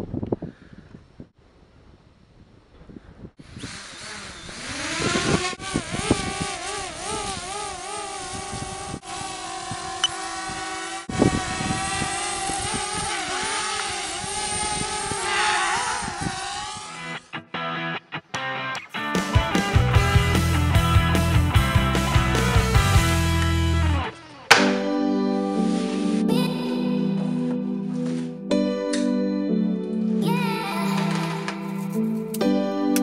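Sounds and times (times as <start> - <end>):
wind buffeting microphone: 0.0 - 3.8, 4.4 - 16.9
drone propellers whining: 3.4 - 17.4, 19.0 - 28.0.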